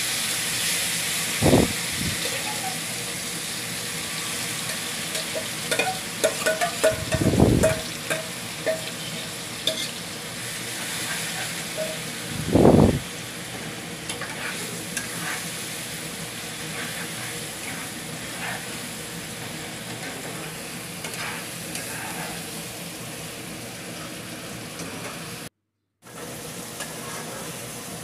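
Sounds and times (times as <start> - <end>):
chicken sizzling in hot oil: 0.0 - 28.0
spatula scraping a pan: 2.2 - 2.9, 4.0 - 12.2, 13.5 - 22.7, 26.8 - 27.6.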